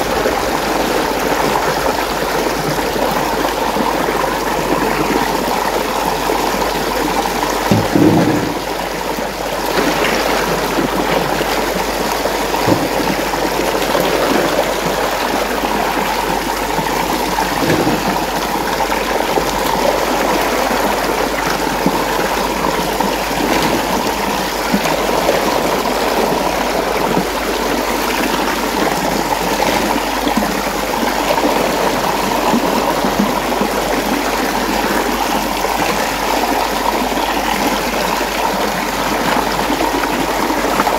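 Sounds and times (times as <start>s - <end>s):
water swirling in a whirlpool: 0.0s - 40.9s
brief knocks: 7.7s - 8.8s.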